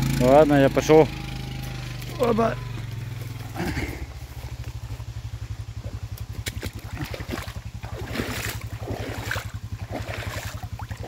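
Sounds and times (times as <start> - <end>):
quad bike engine idling: 0.0 - 11.0
footsteps splashing through mud: 5.8 - 11.0.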